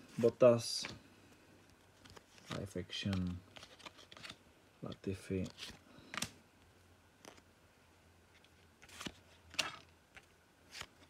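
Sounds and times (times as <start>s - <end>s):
cards swishing and clicking: 1.7s - 6.4s, 8.4s - 11.0s.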